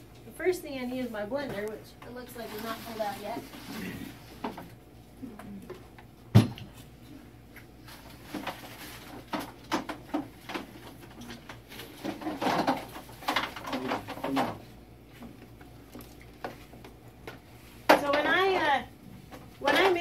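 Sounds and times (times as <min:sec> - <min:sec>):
objects clattering on tabletop: 0:08.3 - 0:14.6.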